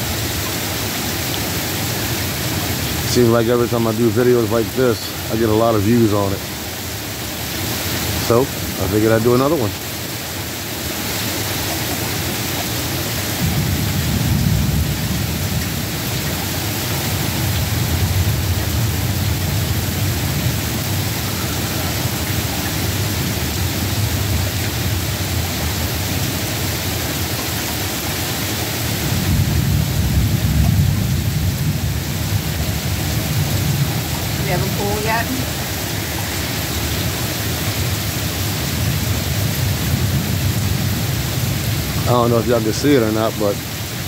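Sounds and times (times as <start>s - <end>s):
steady rain: 0.0s - 44.0s
low thunder rumbling: 13.3s - 27.2s, 28.9s - 42.8s.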